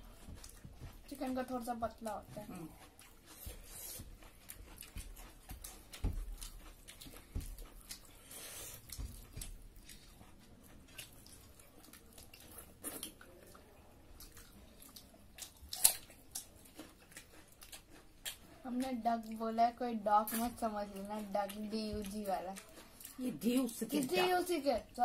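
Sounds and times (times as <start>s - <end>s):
wet chewing and lip-smacking: 0.0s - 19.5s, 20.2s - 25.0s
loud crunch of onion bitten: 14.2s - 18.6s.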